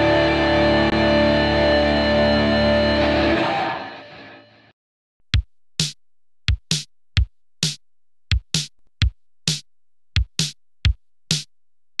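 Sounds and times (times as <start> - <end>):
drum machine beat: 5.3 - 12.0.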